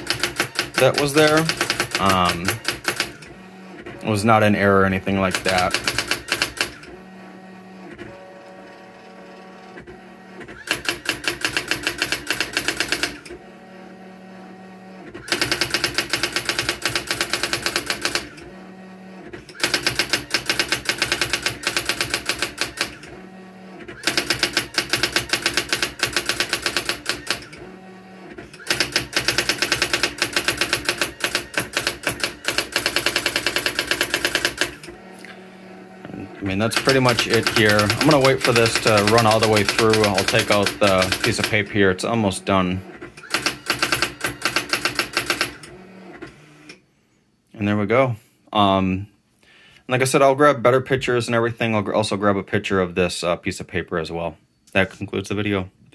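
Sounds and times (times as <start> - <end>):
typewriter printwheel strikes: 0.0 - 3.2, 5.2 - 6.8, 10.6 - 13.3, 15.2 - 18.4, 19.5 - 23.0, 24.0 - 27.6, 28.6 - 34.8, 36.6 - 41.7, 43.2 - 45.8
typewriter motor hum: 0.0 - 46.8.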